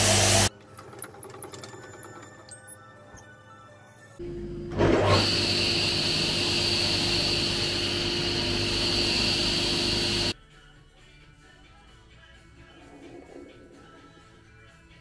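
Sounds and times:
power tool motor running: 0:04.7 - 0:10.3.

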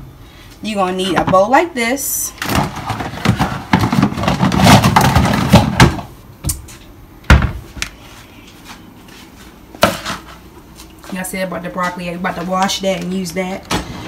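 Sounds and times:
rustling on kitchen counter: 0:02.4 - 0:06.0, 0:07.5 - 0:14.0.

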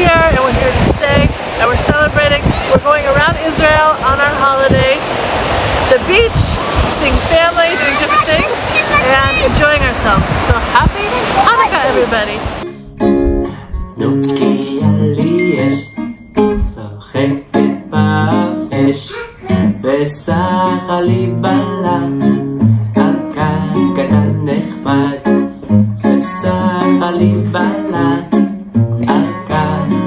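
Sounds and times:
strummed acoustic guitar: 0:12.6 - 0:30.0
person singing: 0:13.4 - 0:30.0.

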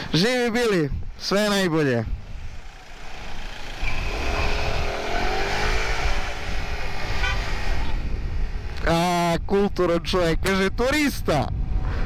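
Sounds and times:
scooter engine whining: 0:02.3 - 0:08.1.

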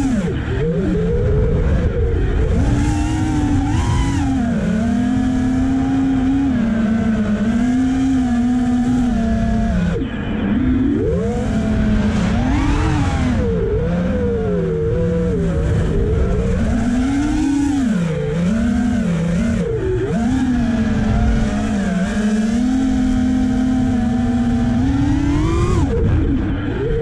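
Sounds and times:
quadcopter motors whining: 0:00.0 - 0:27.0.

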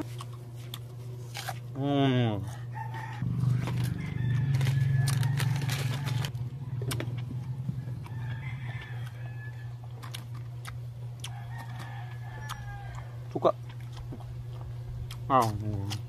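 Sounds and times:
mango being bitten and chewed: 0:00.0 - 0:16.0
steady low hum: 0:00.0 - 0:16.0
rooster crowing: 0:02.5 - 0:10.2, 0:11.2 - 0:13.3.

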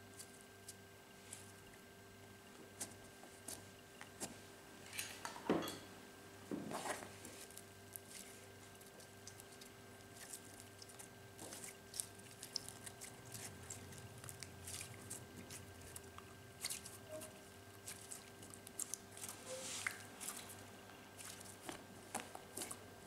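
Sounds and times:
faint steady hum: 0:00.0 - 0:23.0
slime squelching: 0:06.7 - 0:23.0.

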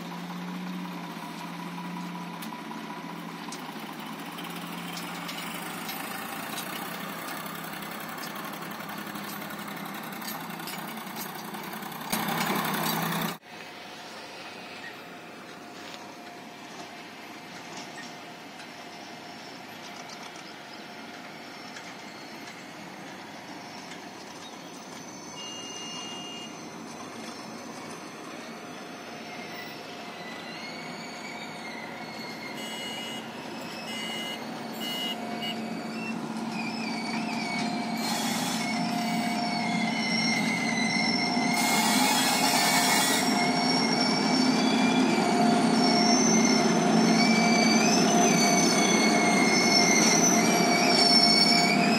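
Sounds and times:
freight train approaching: 0:00.0 - 0:51.9
high-pitched wheel squeal: 0:20.9 - 0:51.9.

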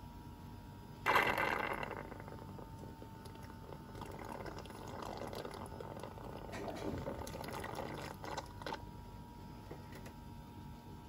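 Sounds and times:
wet gurgling suction: 0:01.1 - 0:08.8.

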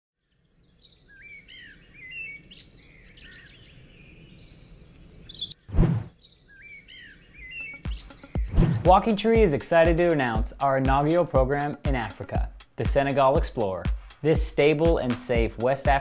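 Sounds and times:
birds chirping and calling: 0:00.3 - 0:08.8.

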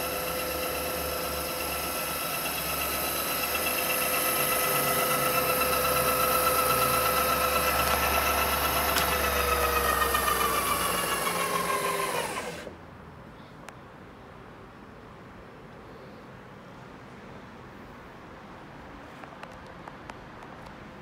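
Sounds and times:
mill spindle whining: 0:00.0 - 0:12.8.

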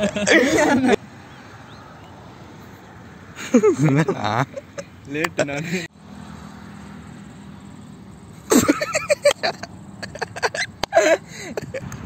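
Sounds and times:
men laughing: 0:00.0 - 0:01.1, 0:03.4 - 0:05.9, 0:08.4 - 0:11.9.

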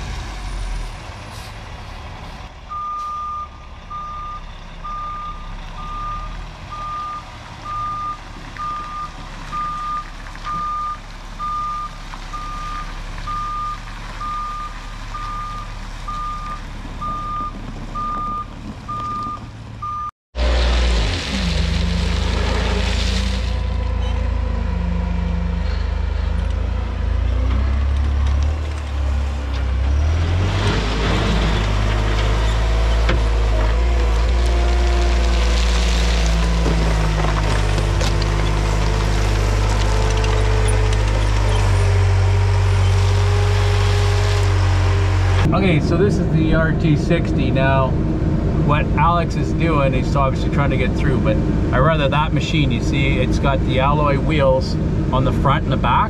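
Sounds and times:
diesel engine working under load: 0:00.0 - 0:56.0
truck backup alarm beeping: 0:02.7 - 0:20.1
truck engine reversing: 0:02.7 - 0:50.4.

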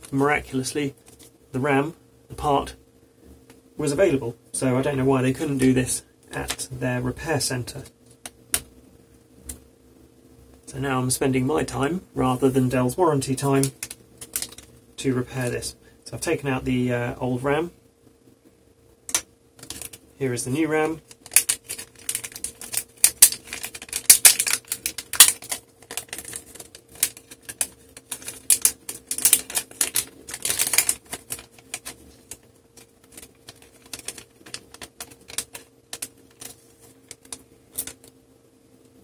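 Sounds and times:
plastic bag crinkling: 0:13.6 - 0:14.7, 0:19.6 - 0:20.0, 0:21.0 - 0:38.1.

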